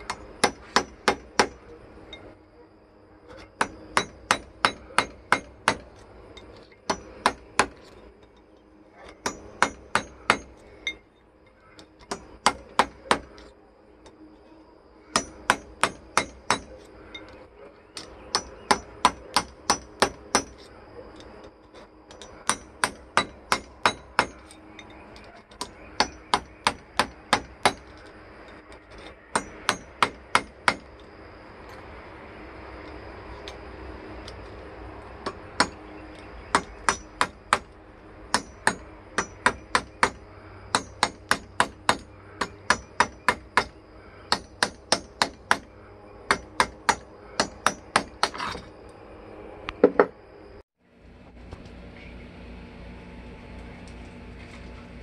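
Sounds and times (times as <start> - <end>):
hammer striking metal pin: 0.0 - 1.6, 3.6 - 5.9, 9.2 - 11.0, 15.1 - 16.7, 38.3 - 43.7.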